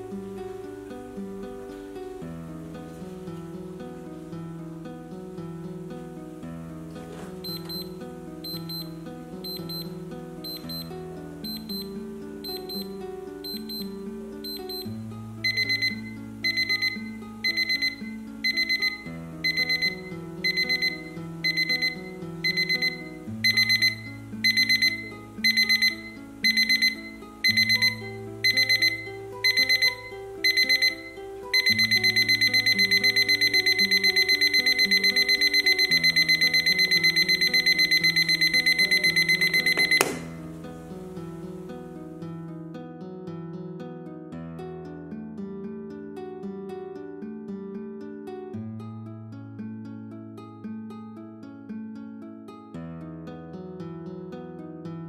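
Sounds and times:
alarm clock beeping: 0:07.4 - 0:40.4.

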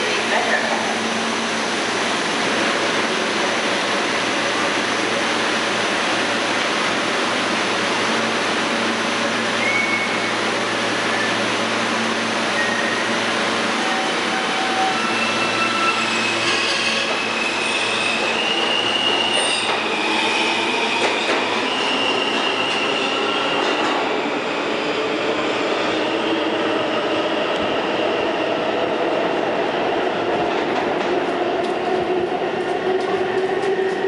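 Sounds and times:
subway train wheel squeal: 0:09.4 - 0:28.5.

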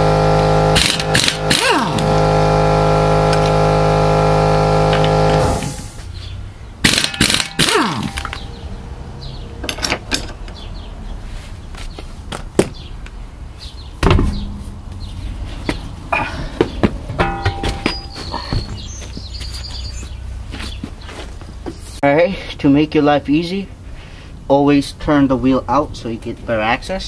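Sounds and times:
air impact wrench whirring: 0:00.0 - 0:06.0, 0:06.8 - 0:08.4
metallic knocks and clunks: 0:09.6 - 0:10.6, 0:14.0 - 0:15.1, 0:16.6 - 0:18.8
heavy thump: 0:14.0 - 0:15.0, 0:16.4 - 0:18.9.

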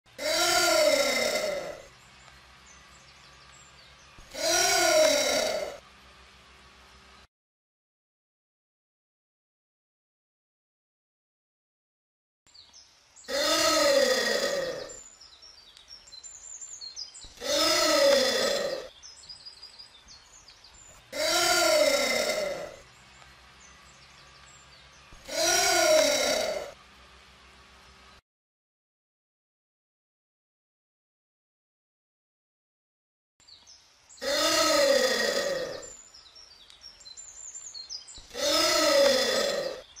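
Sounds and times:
anteater calling: 0:00.1 - 0:01.9, 0:04.2 - 0:05.8, 0:13.2 - 0:15.2, 0:16.3 - 0:20.2, 0:20.8 - 0:22.8, 0:23.6 - 0:26.8, 0:34.1 - 0:40.0
faint bird chirps: 0:12.5 - 0:26.8, 0:33.4 - 0:40.0.

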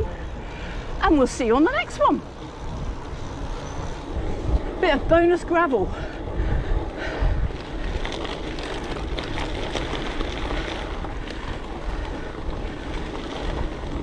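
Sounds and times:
wind buffeting microphone: 0:00.0 - 0:14.0
tyres crunching over gravel: 0:07.5 - 0:14.0.

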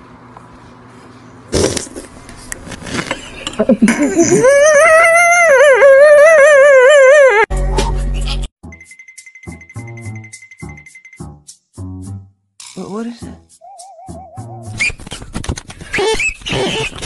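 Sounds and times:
cartoon crying: 0:04.2 - 0:07.5.

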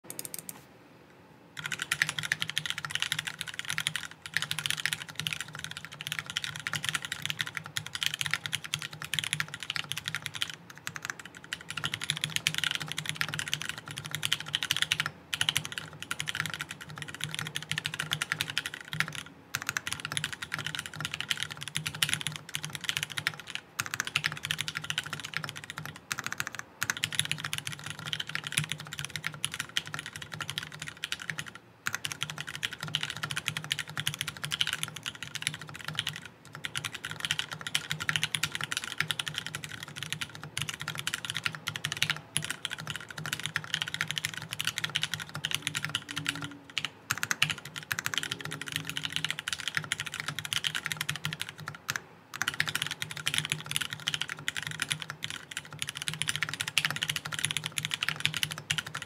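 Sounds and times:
mechanical keyboard typing: 0:00.1 - 0:00.6, 0:01.6 - 0:59.0.

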